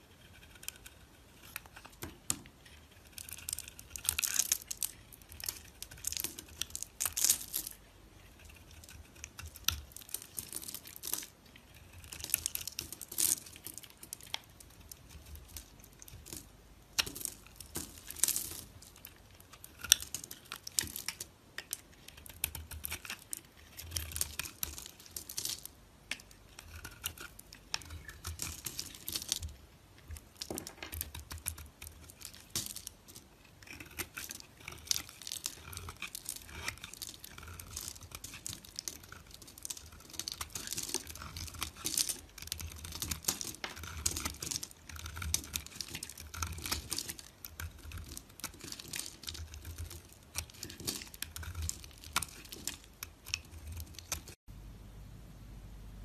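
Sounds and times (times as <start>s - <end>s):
knife cutting dry soap: 30.1s - 54.4s.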